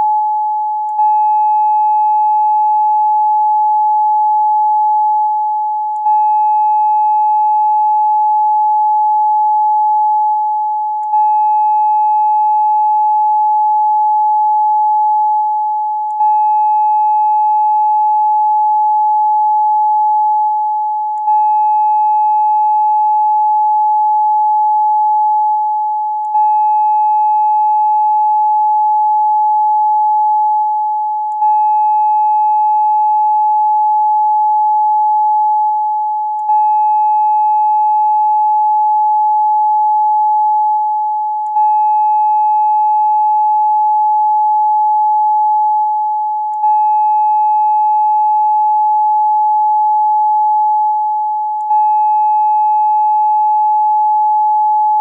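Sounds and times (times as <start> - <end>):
steady sine tone: 0.0 - 55.0.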